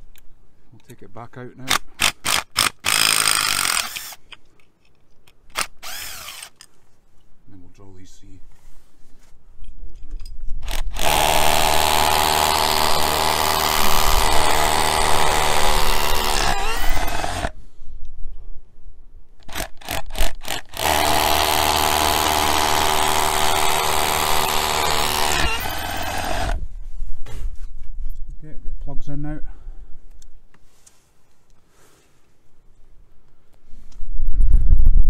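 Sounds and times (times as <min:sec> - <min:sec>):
drill boring into masonry: 0:02.0 - 0:04.2, 0:05.6 - 0:06.6, 0:10.6 - 0:17.6, 0:19.4 - 0:26.6
drill trigger blips: 0:02.2 - 0:04.2, 0:05.6 - 0:06.6, 0:10.7 - 0:17.5, 0:19.4 - 0:26.6.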